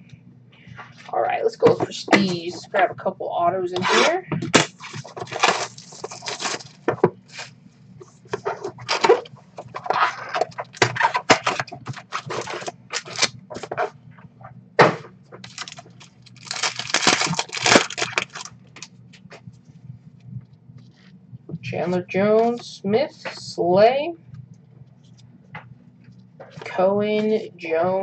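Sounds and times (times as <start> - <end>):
foil wrappers crinkling and tearing: 4.6 - 7.5, 8.4 - 13.8, 15.4 - 18.9.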